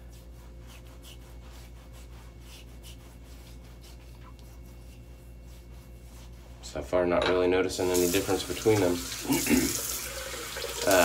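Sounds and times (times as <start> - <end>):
razor scraping stubble: 0.0 - 6.5
steady low hum: 0.0 - 8.0.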